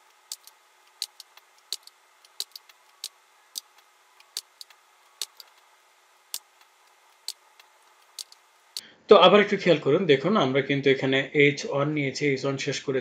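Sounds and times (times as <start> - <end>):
keyboard and mouse clicks: 0.3 - 5.7, 6.3 - 8.8.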